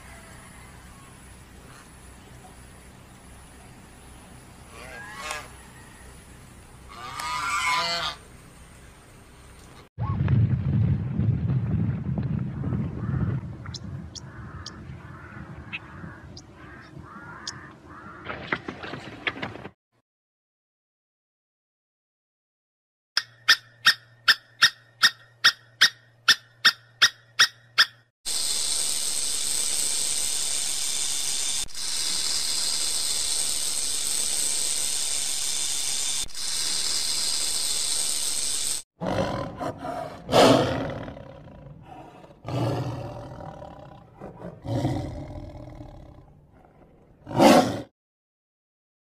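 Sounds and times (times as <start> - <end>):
lion roaring: 39.0 - 47.9.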